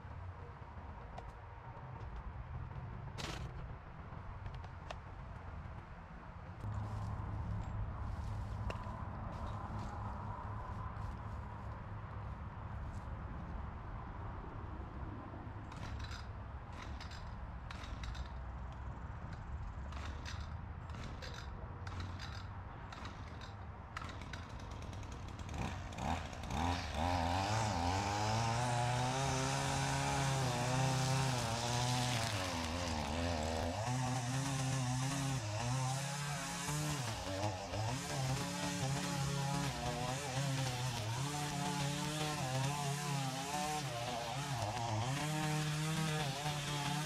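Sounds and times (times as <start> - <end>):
small gasoline engine: 25.0 - 47.0.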